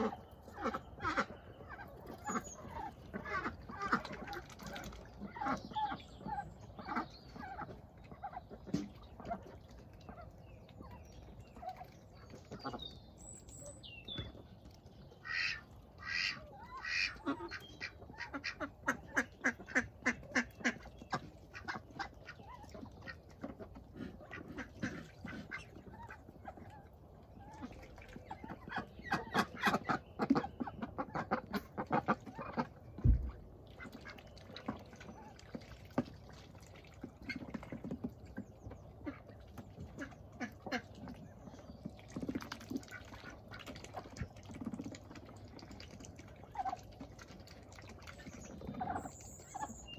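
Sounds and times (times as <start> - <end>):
ducks quacking: 0.0 - 10.9, 15.2 - 36.1, 38.6 - 45.7
low thump: 33.0 - 33.4.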